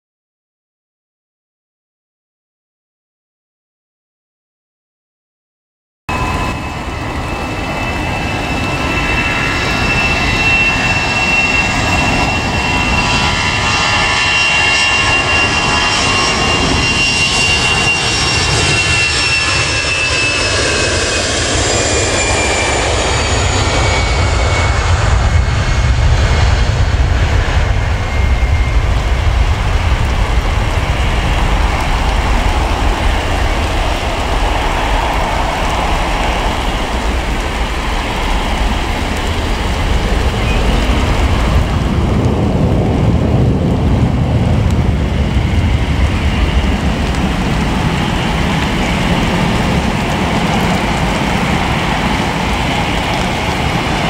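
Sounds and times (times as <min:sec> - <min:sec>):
jet takeoff roar: 0:06.1 - 0:54.0
jet turbine whine: 0:06.1 - 0:54.0.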